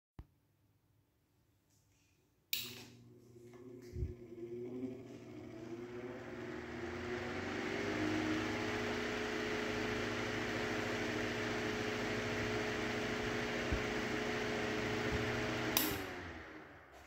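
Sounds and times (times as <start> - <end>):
desk fan motor humming: 2.8 - 16.9
fan switch click: 15.7 - 16.1.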